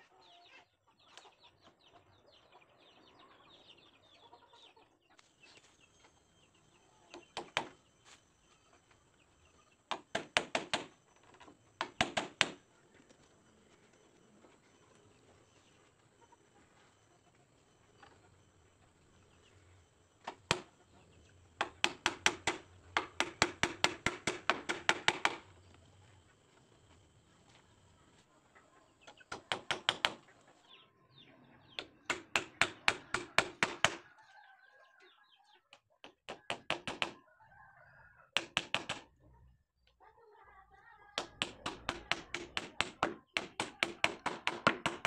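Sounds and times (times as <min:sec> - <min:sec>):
hammer striking nails into wood: 0:07.2 - 0:07.8, 0:09.9 - 0:11.0, 0:11.8 - 0:12.6, 0:20.2 - 0:20.7, 0:21.6 - 0:25.5, 0:29.3 - 0:30.2, 0:31.8 - 0:34.0, 0:36.0 - 0:37.2, 0:38.4 - 0:39.1, 0:41.2 - 0:45.0.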